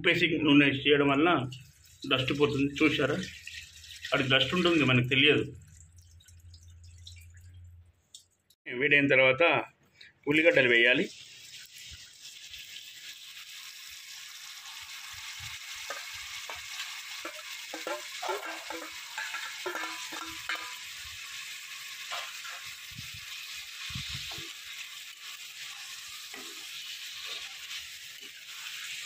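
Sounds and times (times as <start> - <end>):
onions sizzling in hot oil: 1.5 - 4.7, 10.8 - 29.0.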